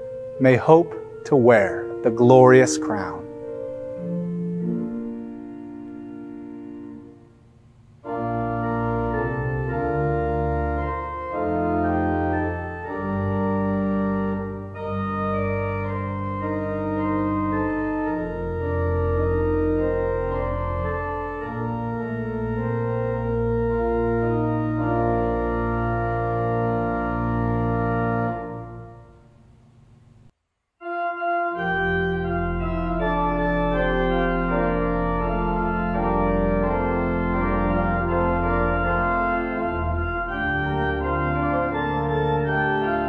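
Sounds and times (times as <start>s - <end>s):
church organ chords: 0.0s - 30.0s, 30.8s - 43.0s.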